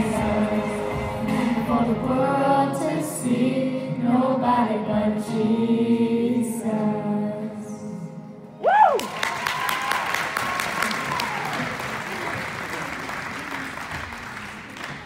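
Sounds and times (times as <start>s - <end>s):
youth choir singing: 0.0s - 8.3s
rising and falling whoop: 8.6s - 11.7s.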